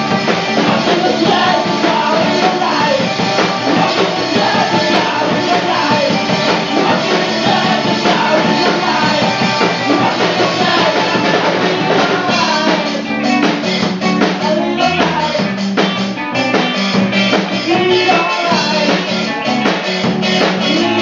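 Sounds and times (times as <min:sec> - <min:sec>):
drum kit beat: 0:00.0 - 0:21.0
electric guitar: 0:00.0 - 0:21.0.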